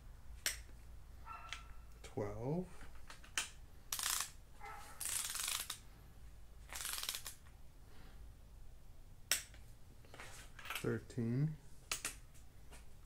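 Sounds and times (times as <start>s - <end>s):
torque wrench ratchet clicks: 3.9s - 4.4s, 5.0s - 5.8s, 6.7s - 7.4s.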